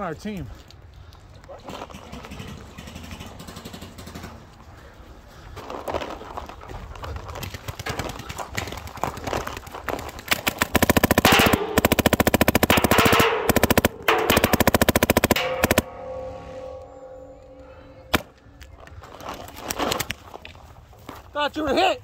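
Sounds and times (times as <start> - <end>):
paintball markers firing: 7.5 - 16.0.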